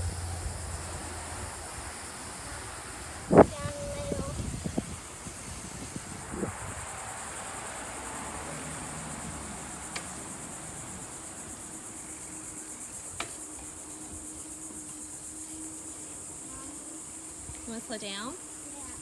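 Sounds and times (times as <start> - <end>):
low rushing noise: 0.0 - 14.5
high-pitched insect chorus: 0.0 - 19.0.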